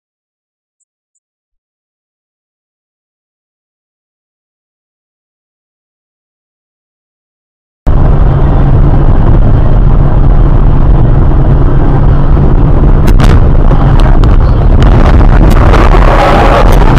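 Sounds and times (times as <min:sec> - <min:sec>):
car cabin road rumble: 0:07.9 - 0:16.9.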